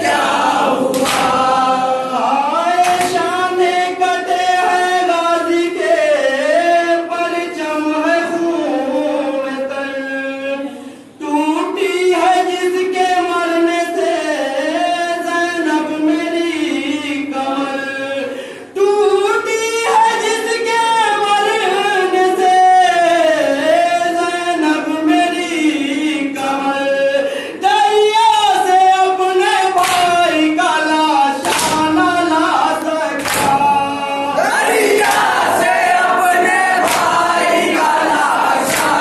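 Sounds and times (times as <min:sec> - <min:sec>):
men chanting a lament: 0:00.0 - 0:39.0
hands slapping chests: 0:00.9 - 0:01.4, 0:31.4 - 0:31.9, 0:33.2 - 0:33.6, 0:35.0 - 0:35.4, 0:36.8 - 0:37.2, 0:38.6 - 0:39.0.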